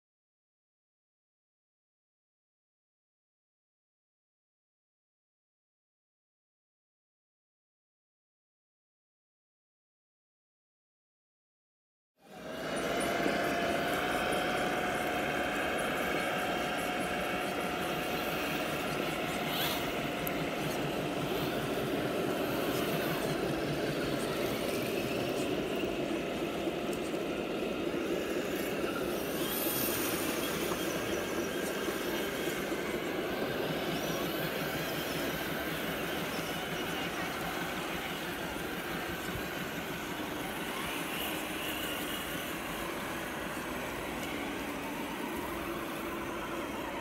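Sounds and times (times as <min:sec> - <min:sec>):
electric motors and gearboxes whirring: 0:12.2 - 0:47.0.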